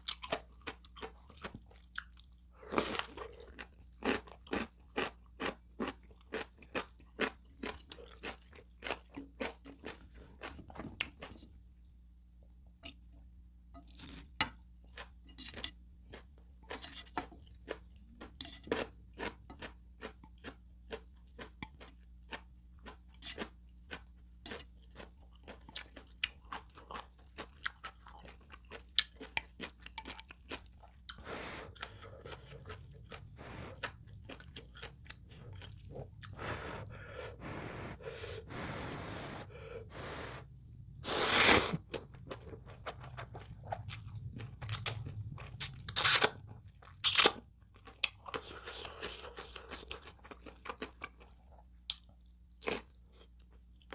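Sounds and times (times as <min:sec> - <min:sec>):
chewing noodles: 0:00.0 - 0:11.5, 0:14.9 - 0:53.9
slurping noodles: 0:35.4 - 0:42.0.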